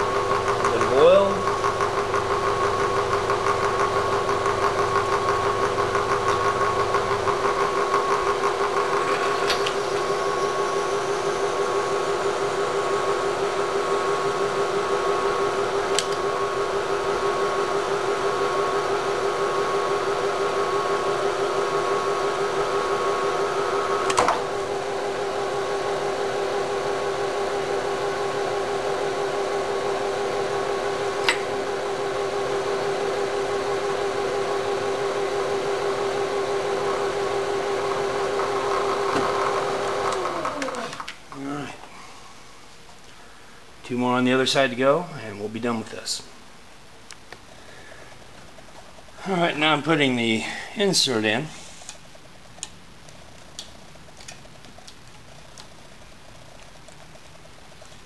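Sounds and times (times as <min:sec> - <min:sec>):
spindle motor humming: 0:00.0 - 0:41.7.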